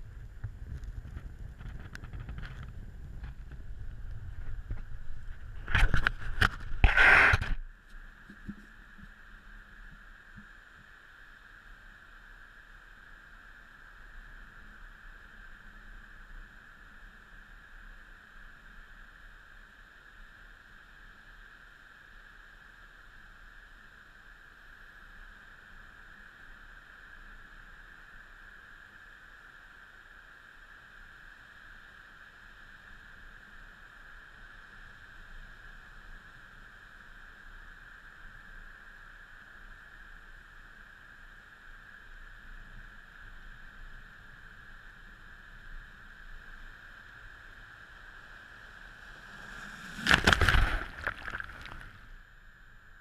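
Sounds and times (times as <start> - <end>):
faint steady hiss: 0.0 - 53.0
high even hum: 44.9 - 53.0.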